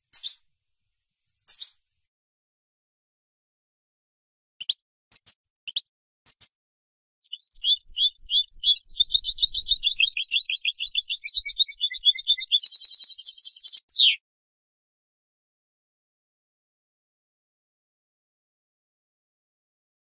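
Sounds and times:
goldfinch singing: 0:00.1 - 0:00.4, 0:01.5 - 0:01.8, 0:07.2 - 0:14.2.

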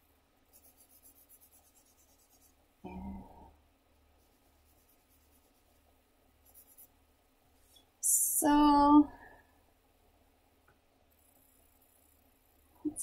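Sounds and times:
pencil scratching on paper: 0:00.5 - 0:02.5, 0:04.2 - 0:05.8, 0:06.4 - 0:06.9.

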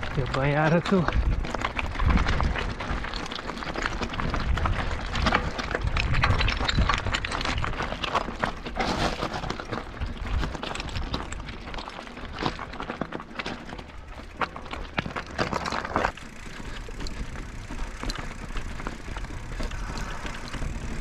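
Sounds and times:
bike frame and chain rattling: 0:00.0 - 0:21.0
tyres crunching on loose stones: 0:00.0 - 0:21.0.

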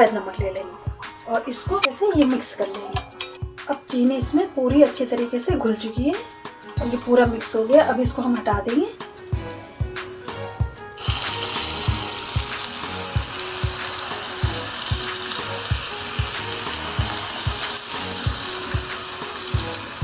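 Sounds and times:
background music with steady beat: 0:00.0 - 0:20.0
food deep-frying in hot oil: 0:11.0 - 0:20.0.

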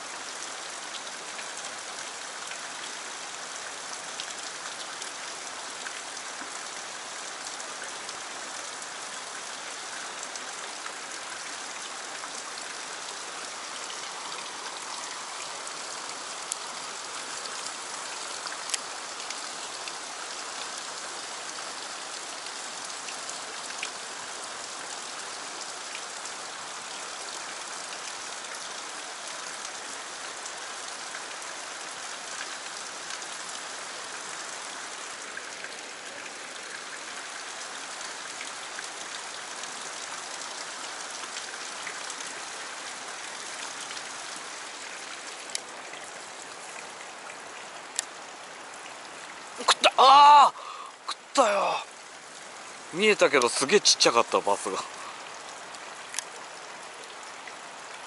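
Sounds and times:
stream water rushing over rocks: 0:00.0 - 0:58.0
faint sharp ticks: 0:45.5 - 0:45.7.

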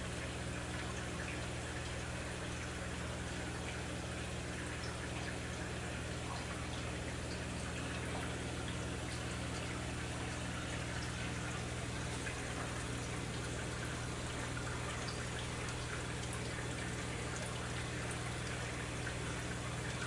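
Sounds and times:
water trickling and splashing: 0:00.0 - 0:20.0
faint drips: 0:04.5 - 0:20.0
steady low hum: 0:04.6 - 0:20.0.

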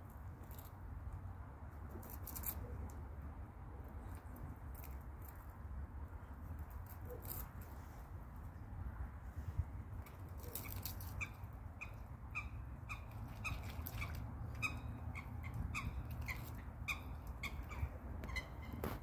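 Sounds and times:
steady low rumble: 0:11.3 - 0:19.0.

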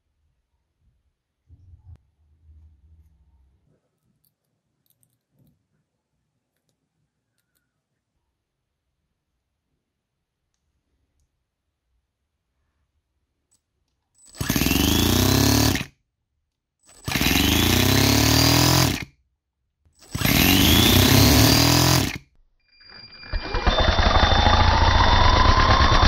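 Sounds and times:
model engine revving: 0:14.4 - 0:15.9, 0:17.0 - 0:19.1, 0:20.0 - 0:22.2, 0:23.2 - 0:26.0.

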